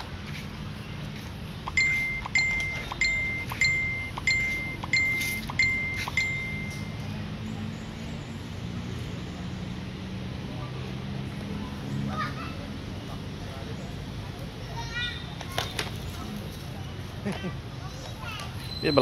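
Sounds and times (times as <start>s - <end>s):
high ringing tone: 1.7s - 7.1s.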